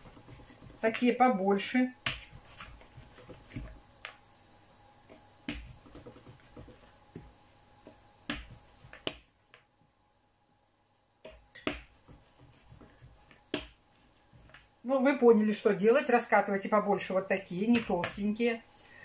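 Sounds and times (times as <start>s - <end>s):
rolling pin rolling dough: 0.0s - 3.8s, 5.1s - 7.3s, 8.2s - 9.6s, 11.3s - 15.1s, 17.5s - 18.4s.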